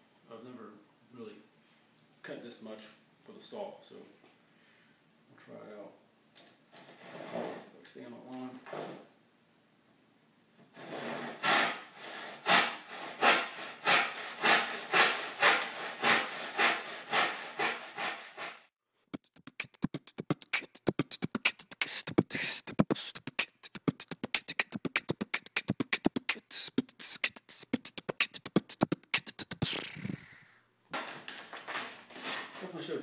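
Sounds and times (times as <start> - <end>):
hand saw cutting wood: 10.8 - 18.7.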